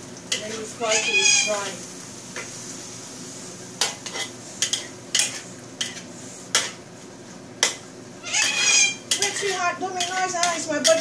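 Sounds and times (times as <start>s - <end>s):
steady sizzle: 0.0s - 11.0s
spatula scraping and clinking on wok: 3.8s - 6.8s, 7.6s - 11.0s.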